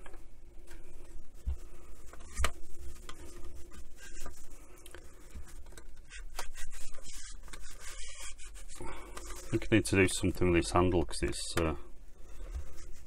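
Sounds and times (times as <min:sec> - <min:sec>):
wet wipe rubbing plastic: 0:01.0 - 0:10.4, 0:12.3 - 0:13.0.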